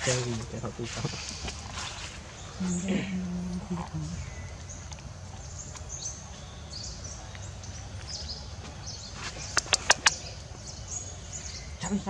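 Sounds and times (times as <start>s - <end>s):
high bird chirps: 5.4s - 12.0s.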